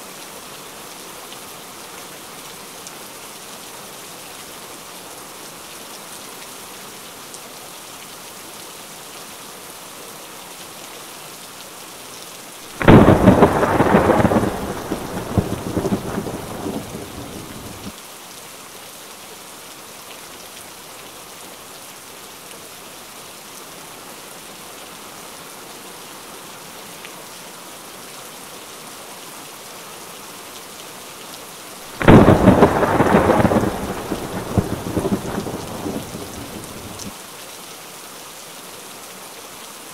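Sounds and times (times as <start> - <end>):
steady rain falling: 0.0 - 39.9
thunder claps: 12.8 - 17.9, 32.0 - 37.1.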